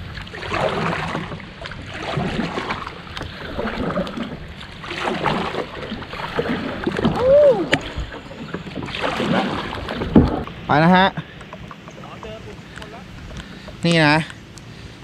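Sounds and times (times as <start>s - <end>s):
paddle splashing into water: 0.0s - 12.8s
rising and falling cry: 7.1s - 7.8s.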